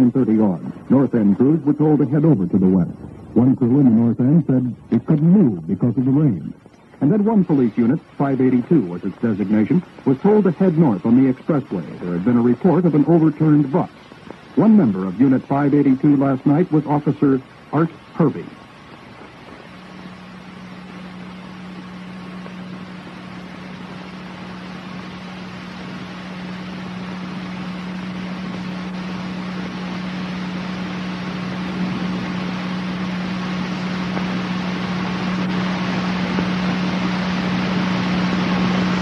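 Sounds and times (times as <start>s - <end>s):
low steady hum: 0.0s - 39.0s
hiss-like rushing noise: 4.5s - 39.0s.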